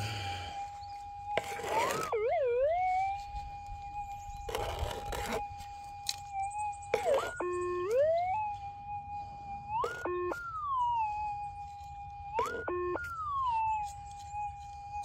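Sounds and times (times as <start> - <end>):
metal detector threshold tone: 6.1 - 8.6.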